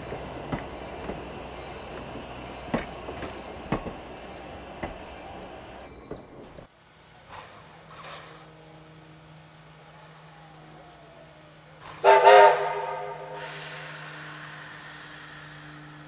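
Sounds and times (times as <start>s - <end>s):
steam locomotive whistle blasts: 12.0s - 15.9s.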